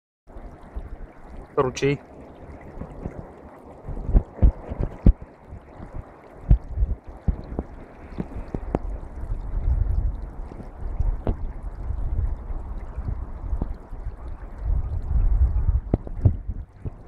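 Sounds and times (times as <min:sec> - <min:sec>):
brook rushing and gurgling: 0:00.3 - 0:17.0
sharp pops of water: 0:00.6 - 0:09.0, 0:10.6 - 0:11.5, 0:13.1 - 0:13.8, 0:15.8 - 0:17.0.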